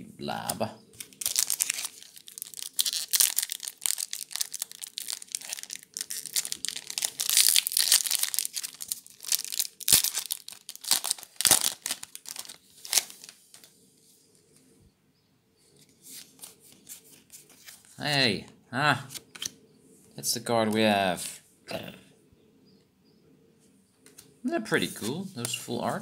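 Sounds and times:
foil wrapper crinkling and tearing: 1.0 - 13.4.

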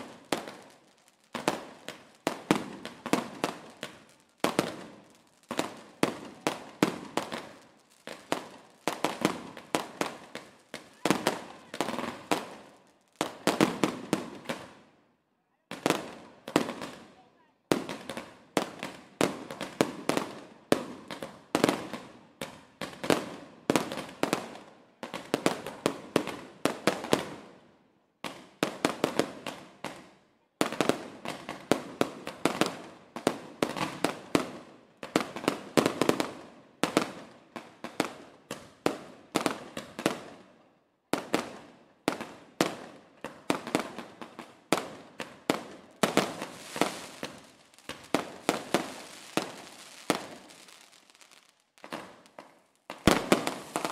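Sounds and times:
fireworks banging: 45.2 - 53.9.

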